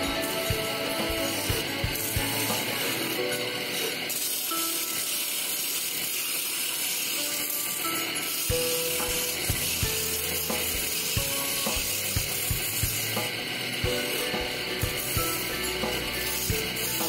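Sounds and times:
wood lathe running: 0.0s - 17.0s
chisel scraping wood: 8.2s - 17.0s.

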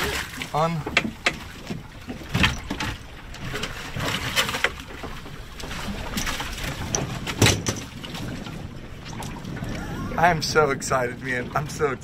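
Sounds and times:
water noise: 0.0s - 12.0s
wind: 0.0s - 12.0s
knocks and clatters of gear: 0.8s - 8.1s.

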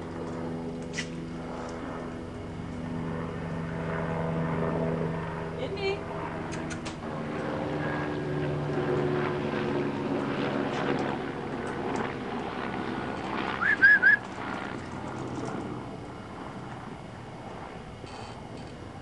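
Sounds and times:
engine drone: 0.0s - 19.0s
short high-pitched squeaks: 18.1s - 18.4s.

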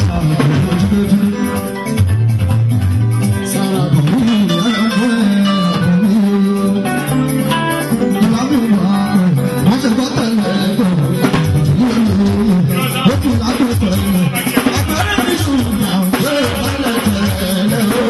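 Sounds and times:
person singing: 0.0s - 2.1s, 3.2s - 18.0s
plucked guitar: 0.0s - 18.0s.

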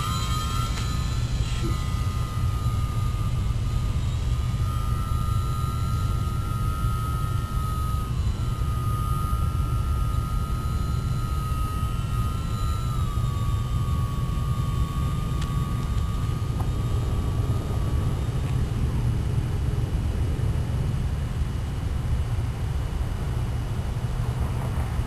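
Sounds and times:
model airplane engine whine: 0.0s - 25.0s.

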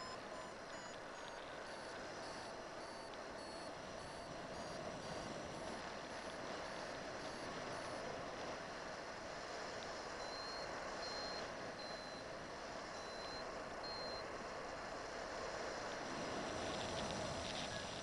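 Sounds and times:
variometer high beeps: 0.0s - 8.1s, 10.2s - 12.3s, 12.9s - 14.3s.

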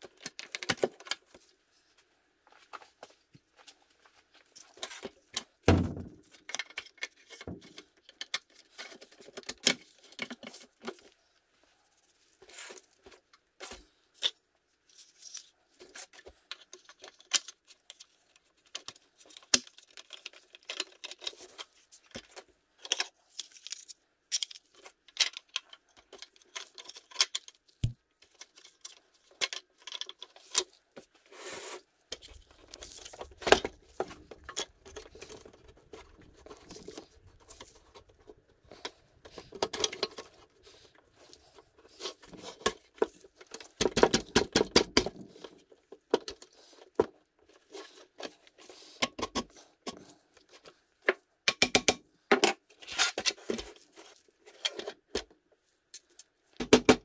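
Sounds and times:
clicks and knocks of metal toy: 42.4s - 45.5s, 51.1s - 53.7s.

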